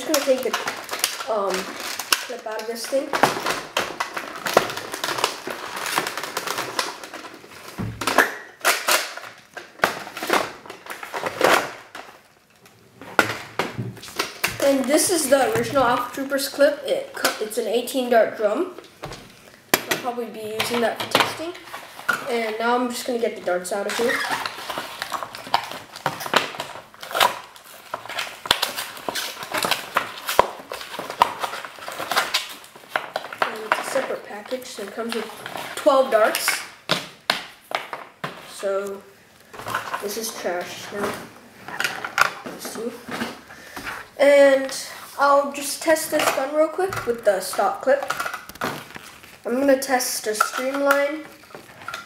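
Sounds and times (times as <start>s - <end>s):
plastic toy blaster clicks and clatter: 0.0s - 3.1s
packaging rustling and crinkling: 0.0s - 17.6s, 18.8s - 52.0s.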